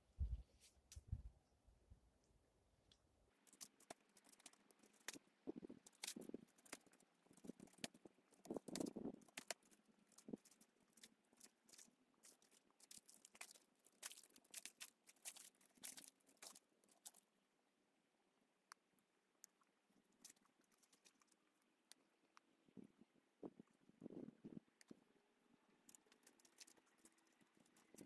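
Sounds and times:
faint clicks and crackles: 0:02.2 - 0:17.5, 0:18.4 - 0:28.0.

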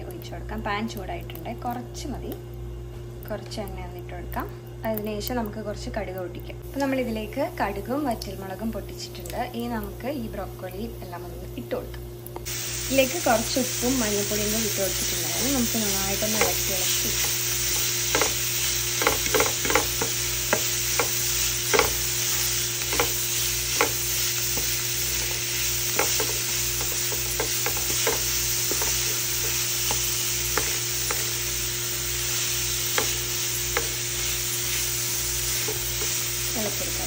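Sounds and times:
food sizzling in pan: 0:12.4 - 0:37.0
spatula scraping frying pan: 0:15.0 - 0:36.6.

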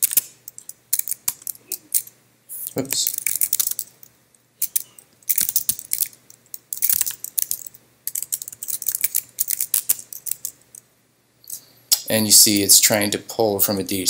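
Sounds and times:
computer keyboard typing: 0:04.6 - 0:10.6.

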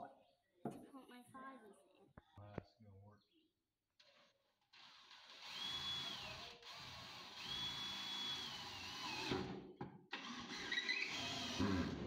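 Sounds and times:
cordless drill whining: 0:04.8 - 0:09.4, 0:10.2 - 0:12.0.

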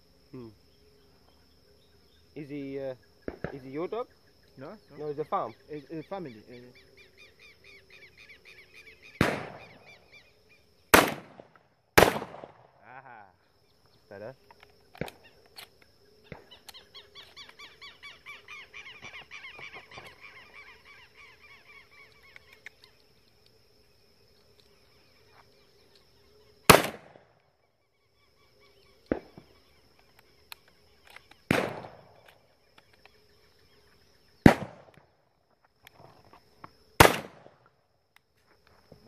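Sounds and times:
shotgun shots echoing: 0:03.2 - 0:03.8, 0:09.2 - 0:10.1, 0:10.9 - 0:12.8, 0:26.7 - 0:27.3, 0:31.4 - 0:32.4, 0:34.4 - 0:35.0, 0:37.0 - 0:37.6.

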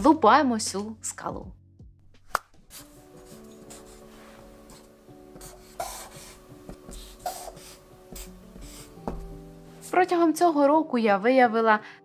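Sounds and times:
marker pen scratching on paper: 0:02.6 - 0:10.0.

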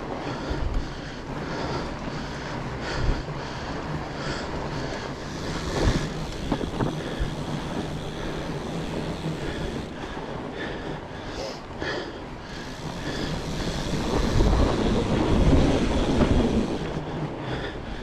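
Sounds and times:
bike tyres on trail: 0:00.0 - 0:18.0
wind on microphone: 0:03.9 - 0:10.6, 0:12.5 - 0:18.0.

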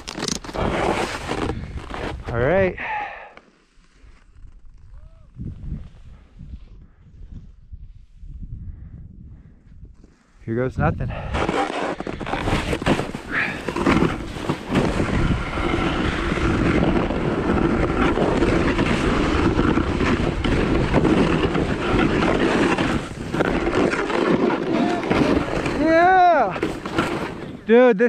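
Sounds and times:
snowboard scraping over crusted snow: 0:00.0 - 0:04.9, 0:11.0 - 0:27.7.

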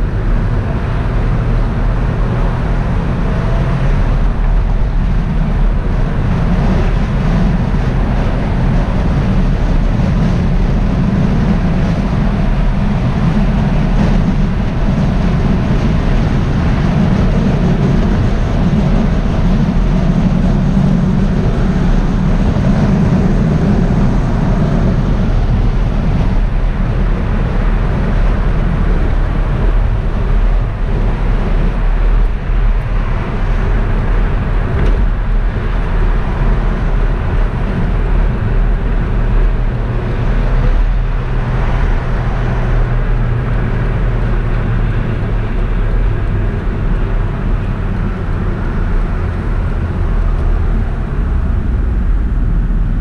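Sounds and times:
car engine and road rumble: 0:00.0 - 0:53.0
wind noise: 0:00.0 - 0:53.0.

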